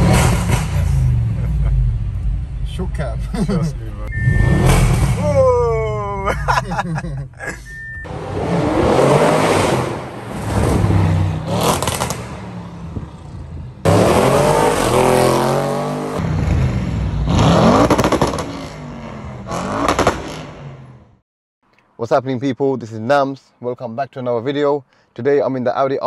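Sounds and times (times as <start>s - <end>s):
car exhaust revving: 0.0s - 5.2s, 7.7s - 20.9s
exhaust cracks: 8.0s - 14.9s, 16.2s - 18.8s.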